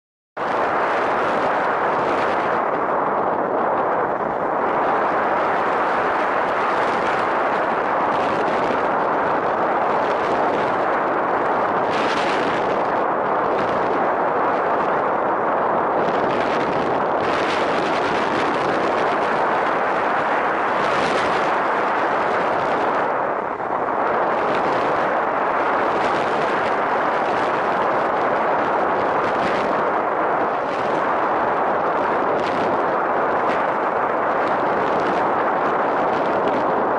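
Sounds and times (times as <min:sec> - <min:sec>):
wind buffeting microphone: 0:00.4 - 0:36.9.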